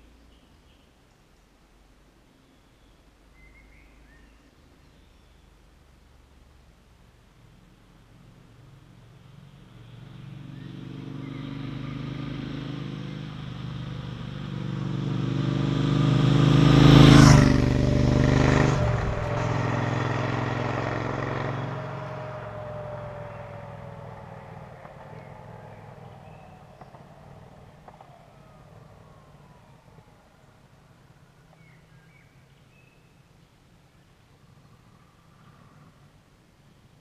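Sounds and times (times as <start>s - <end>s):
motorcycle engine passing: 9.2s - 31.7s
loud tyre noise: 9.6s - 30.1s.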